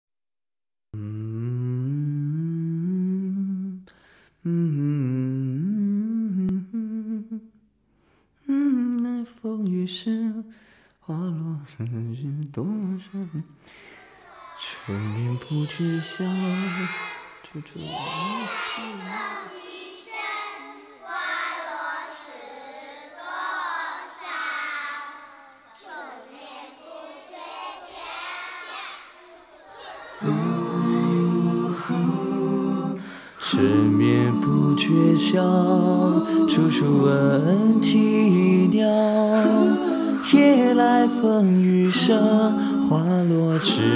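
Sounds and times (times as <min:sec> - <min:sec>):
low voice singing: 0:01.0 - 0:07.6, 0:11.1 - 0:13.6, 0:14.6 - 0:19.6, 0:30.2 - 0:43.9
children singing: 0:12.8 - 0:43.9.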